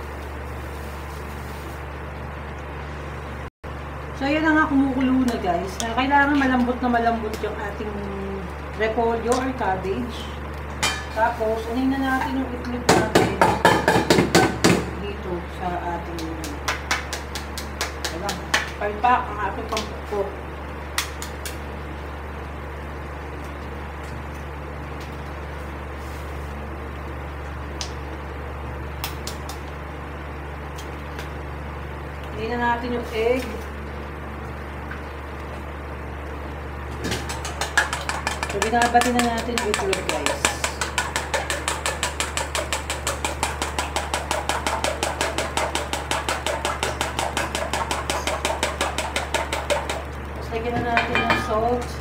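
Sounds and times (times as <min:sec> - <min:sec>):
electrical hum: 0:00.0 - 0:52.0
whisk clicking against metal bowl: 0:37.2 - 0:50.1.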